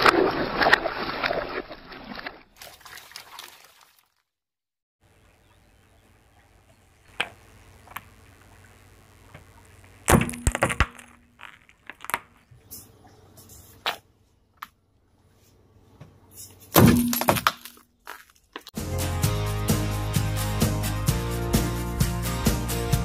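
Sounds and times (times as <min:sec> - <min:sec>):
vase cracking and breaking: 0:10.1 - 0:12.4, 0:16.8 - 0:18.8.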